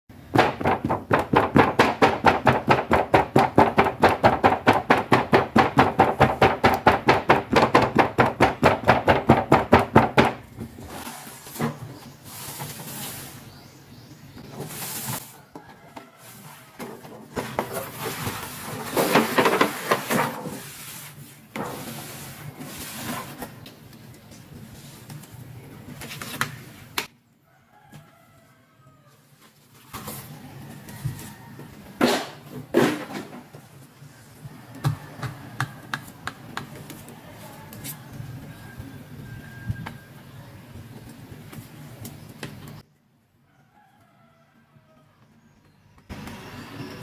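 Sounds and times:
packaging rustling and scraping: 0:10.7 - 0:13.5, 0:14.6 - 0:23.6.

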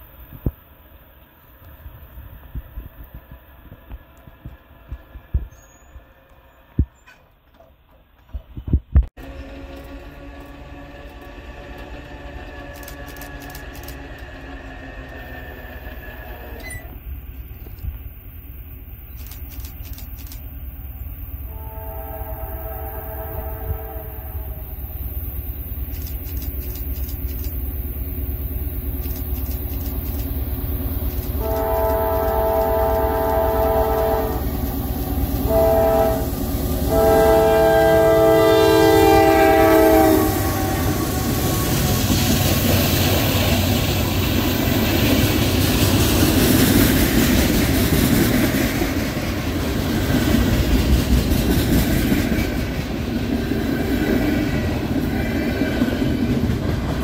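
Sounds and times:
train wheels rolling on rails: 0:00.0 - 0:57.0
locomotive air horn: 0:09.2 - 0:16.9, 0:21.5 - 0:24.8, 0:31.3 - 0:34.6, 0:35.4 - 0:42.1.

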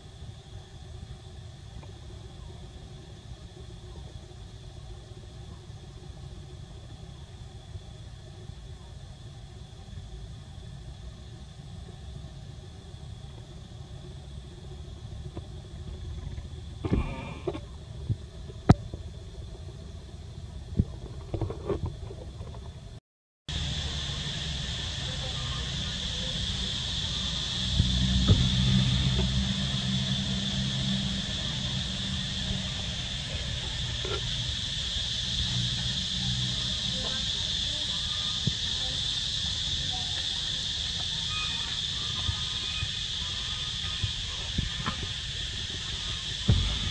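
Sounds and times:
high-pitched insect drone: 0:00.0 - 0:22.7, 0:23.5 - 0:46.9
low outdoor rumble: 0:00.0 - 0:46.9
low steady hum: 0:00.0 - 0:46.9
faint high steady tone: 0:36.2 - 0:44.8.

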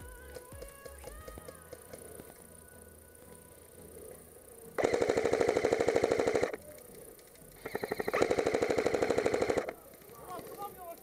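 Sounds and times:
airsoft rifle full-auto fire: 0:04.8 - 0:06.6, 0:07.6 - 0:11.0.

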